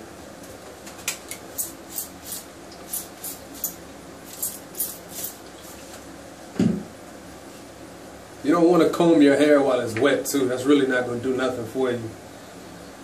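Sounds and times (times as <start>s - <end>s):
spray bottle squirting: 1.6s - 5.4s.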